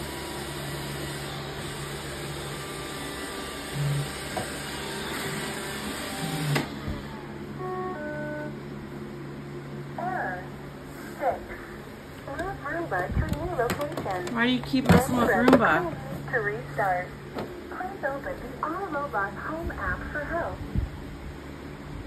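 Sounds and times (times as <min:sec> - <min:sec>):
robot vacuum whirring: 0:00.0 - 0:07.2.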